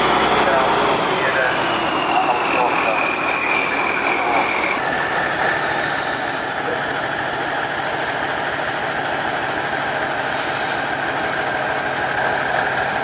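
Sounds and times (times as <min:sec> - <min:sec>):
high whine: 0:00.0 - 0:06.9
truck diesel engine running: 0:00.0 - 0:13.0.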